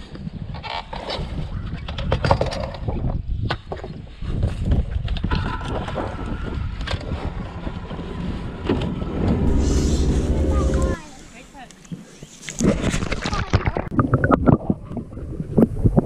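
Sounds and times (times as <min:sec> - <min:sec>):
wind buffeting microphone: 0:01.2 - 0:11.6.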